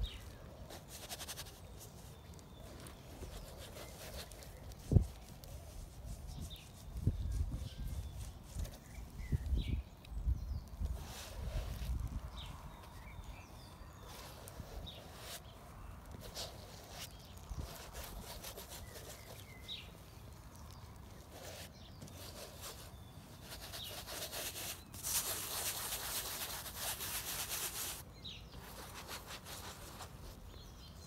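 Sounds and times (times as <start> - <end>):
paintbrush scrubbing on canvas: 0.1 - 9.2, 13.9 - 20.0, 20.6 - 28.0, 28.6 - 30.6.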